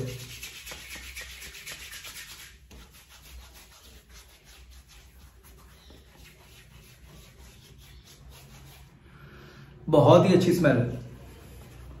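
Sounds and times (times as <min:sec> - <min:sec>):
palms rubbing together: 0:00.0 - 0:09.0.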